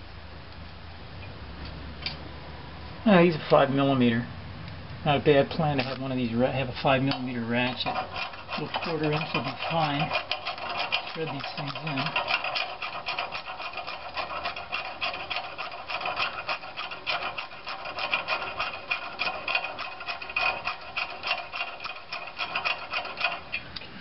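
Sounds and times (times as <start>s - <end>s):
scraping rub: 5.6s - 23.8s
ratchet clicking: 5.8s - 24.0s.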